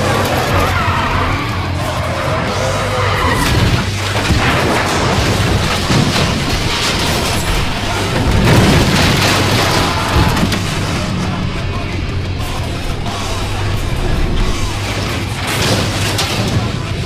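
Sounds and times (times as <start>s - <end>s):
film score music: 0.0s - 17.0s
car body crashing into ground: 4.2s - 11.2s.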